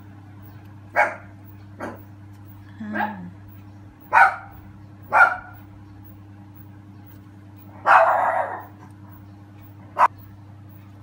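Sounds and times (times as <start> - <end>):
low steady hum: 0.0 - 11.0
dog barking: 0.9 - 2.1, 4.1 - 5.6, 7.8 - 8.8, 10.0 - 10.2.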